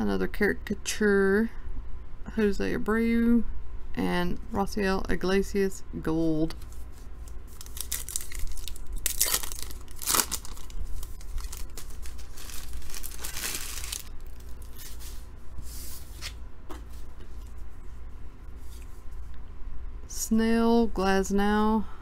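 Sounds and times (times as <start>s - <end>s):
foil wrapper tearing and crinkling: 7.5s - 14.9s.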